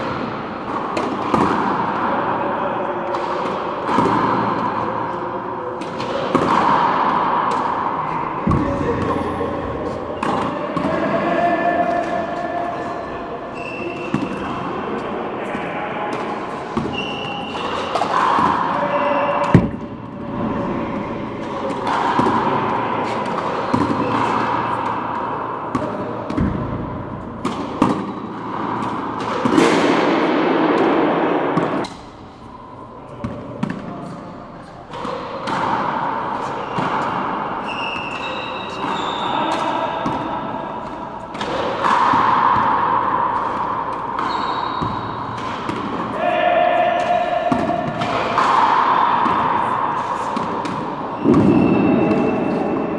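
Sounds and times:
voices in background: 1.7s - 26.6s.

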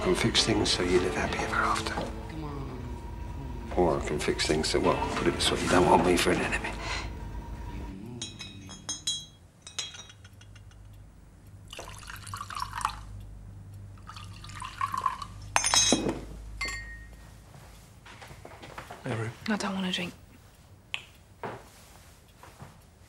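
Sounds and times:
glasses clinking: 8.2s - 10.9s, 14.1s - 17.2s
drink pouring into glass: 11.7s - 13.1s, 14.0s - 15.5s.

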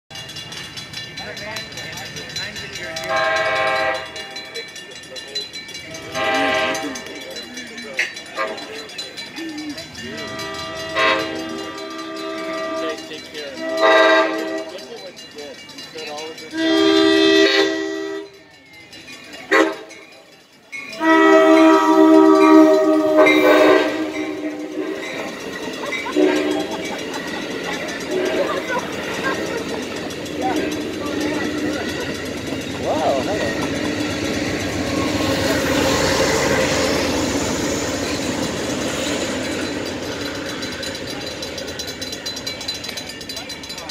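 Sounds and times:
train wheels rumbling and clicking: 0.0s - 43.9s
train air horn blasts: 2.9s - 4.4s, 6.0s - 7.1s, 10.2s - 14.8s, 16.5s - 18.4s, 19.5s - 20.0s, 20.9s - 25.2s, 26.0s - 26.9s.

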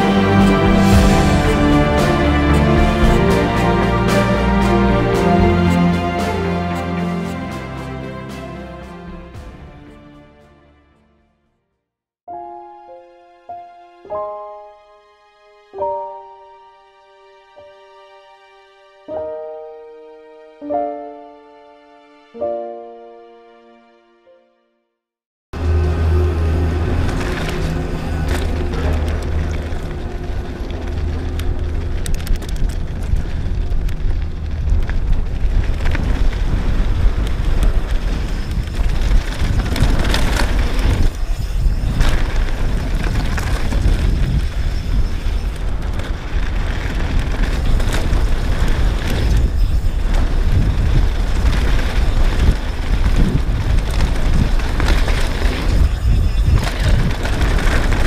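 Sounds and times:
bike tyres on dirt trail: 25.6s - 58.0s
wind buffeting: 25.6s - 58.0s
bike chain and frame rattling: 26.9s - 58.0s.

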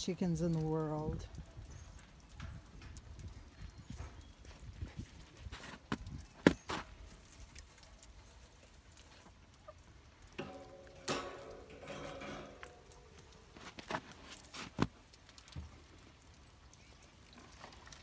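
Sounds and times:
sharp taps and crunches: 1.9s - 8.2s, 10.2s - 16.5s.

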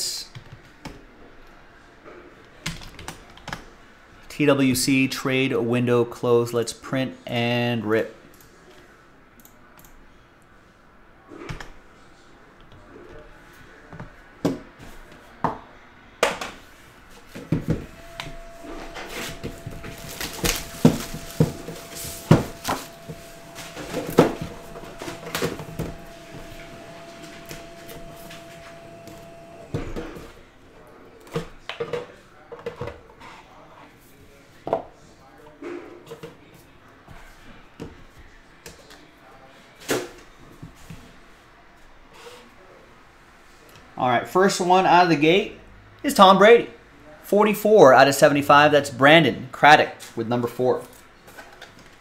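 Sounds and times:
faint steady tone: 17.8s - 29.8s.

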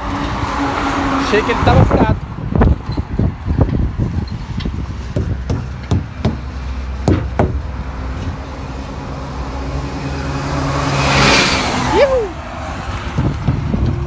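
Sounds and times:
sharp knocks: 5.1s - 7.8s
vehicle passing by: 7.6s - 14.0s.

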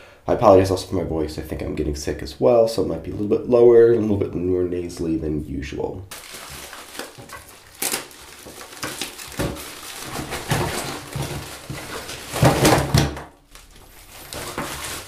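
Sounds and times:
plastic mailer crinkling: 6.1s - 15.0s
cardboard boxes clattering on wood: 8.4s - 13.3s, 14.1s - 15.0s.

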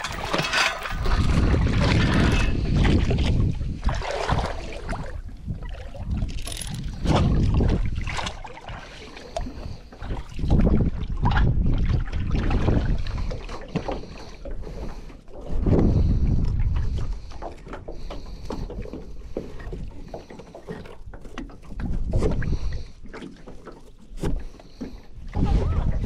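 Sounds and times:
anchor chain clinking: 0.0s - 2.6s, 6.2s - 7.1s
wind buffeting microphone: 0.0s - 13.5s, 14.9s - 17.4s, 21.8s - 23.0s, 25.2s - 26.0s
water sloshing from wading: 0.0s - 26.0s.

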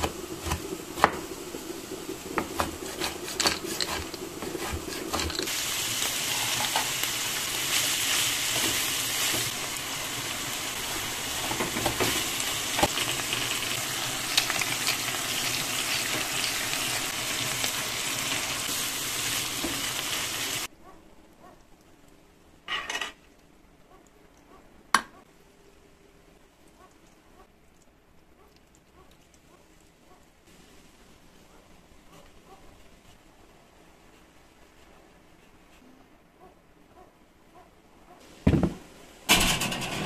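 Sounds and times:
meat sizzling in a pan: 0.0s - 20.7s
stirring scrapes and clicks: 2.3s - 5.5s.

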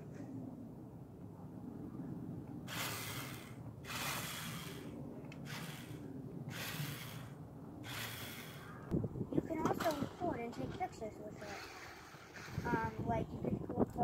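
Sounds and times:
toy truck motor whirring: 2.7s - 8.7s, 11.3s - 13.0s.

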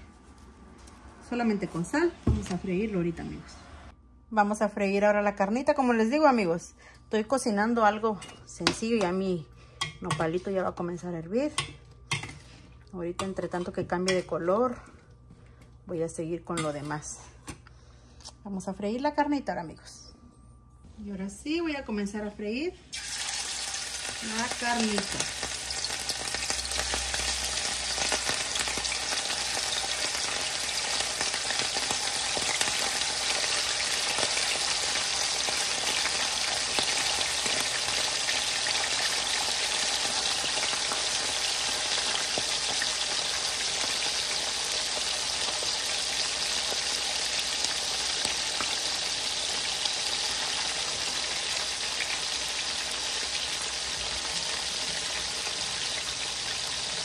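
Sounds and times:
beef sizzling in oil: 22.9s - 57.0s.

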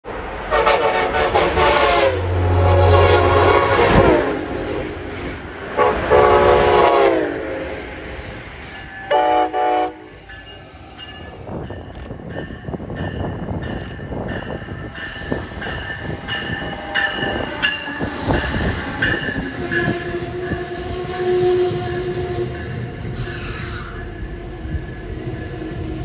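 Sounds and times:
train rumble: 0.0s - 26.0s
train horn chords: 0.5s - 8.2s, 9.0s - 10.3s.

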